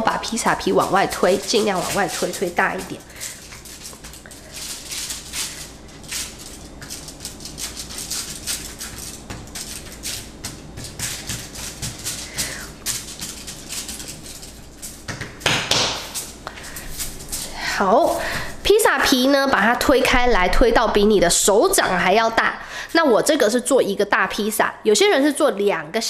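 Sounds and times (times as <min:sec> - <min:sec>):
aluminium foil crinkling: 0:00.0 - 0:15.1, 0:16.0 - 0:18.4.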